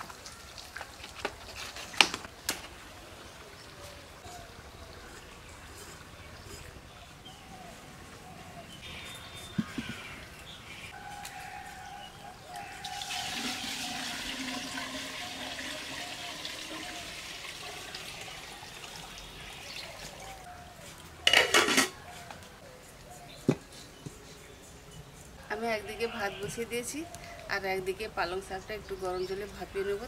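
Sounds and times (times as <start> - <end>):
water pouring into a metal pot: 12.8 - 19.6
metal lid clattering on pot: 21.3 - 22.0.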